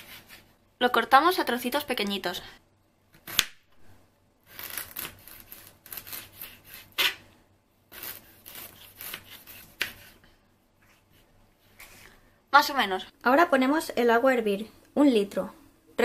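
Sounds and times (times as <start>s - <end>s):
knife slicing ginger: 7.9s - 10.2s.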